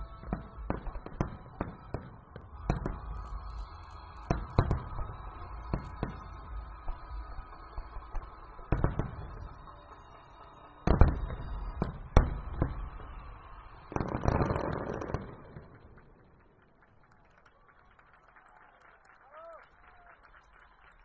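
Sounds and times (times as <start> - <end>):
distant firework bangs: 0.0 - 16.8
firework crackling: 0.0 - 18.5.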